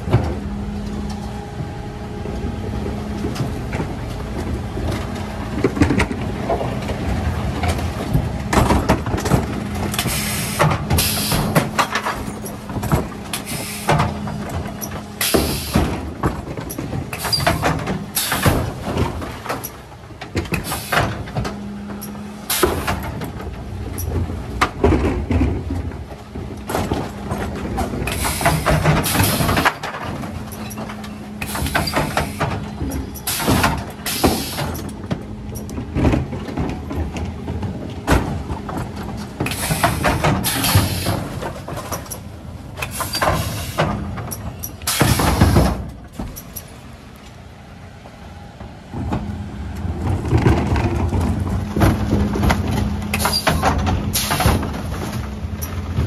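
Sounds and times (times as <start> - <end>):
truck engine and hydraulics hum: 0.0 - 56.0
bins clanging into hopper: 7.7 - 46.8, 50.1 - 56.0
packer sweeping waste: 9.4 - 16.2, 38.3 - 45.8.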